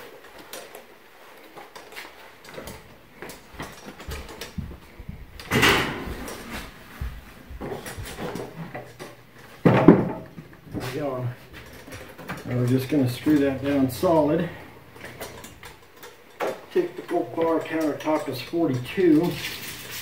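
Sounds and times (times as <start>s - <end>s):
wood knocks and bumps: 3.6s - 10.9s
loud wooden thuds: 9.6s - 10.4s.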